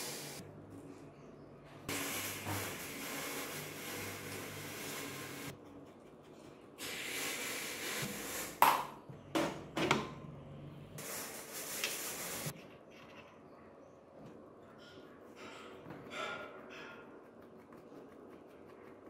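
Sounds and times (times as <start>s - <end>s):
hiss: 0.0s - 0.4s, 1.9s - 5.5s, 6.8s - 8.6s.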